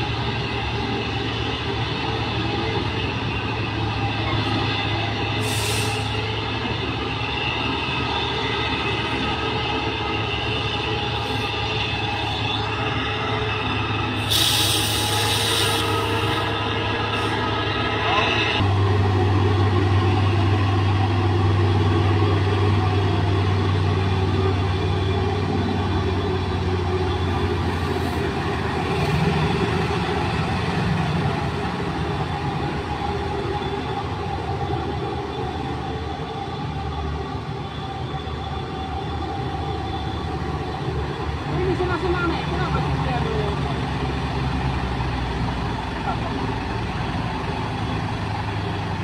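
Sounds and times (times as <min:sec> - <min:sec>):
diesel machinery droning: 0:00.0 - 0:49.0
loud hiss: 0:05.4 - 0:06.2, 0:14.2 - 0:16.5.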